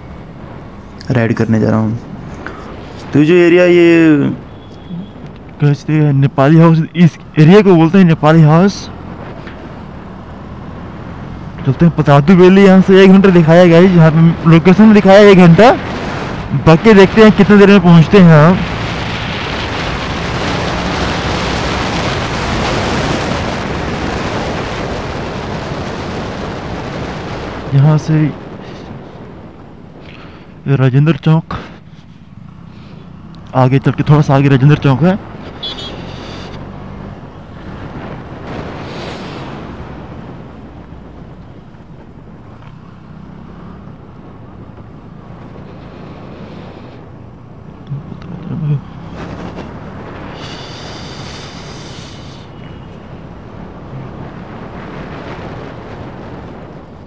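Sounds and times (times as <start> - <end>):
road noise: 0.0 - 57.0
wind rushing over microphone: 7.5 - 30.7, 31.4 - 57.0
motorcycle engine: 35.2 - 57.0.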